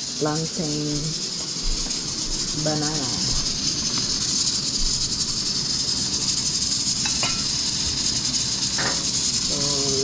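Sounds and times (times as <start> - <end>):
gas stovetop hissing: 0.0 - 10.0
light clinks: 6.4 - 9.5.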